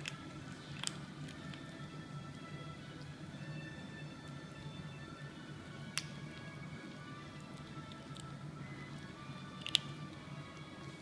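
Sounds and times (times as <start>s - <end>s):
kitten crunching kibble: 0.0s - 1.7s, 7.4s - 8.4s, 9.4s - 10.2s
soft background music: 0.0s - 11.0s.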